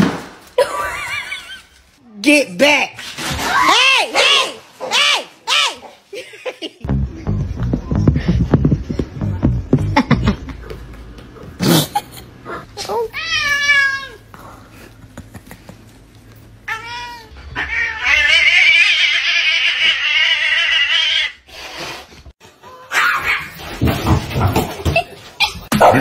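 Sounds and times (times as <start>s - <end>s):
cats meowing: 12.8s - 14.3s, 16.7s - 21.4s.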